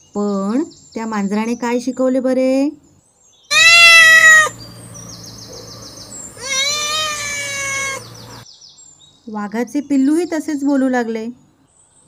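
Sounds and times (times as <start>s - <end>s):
cat meowing: 3.5s - 8.4s.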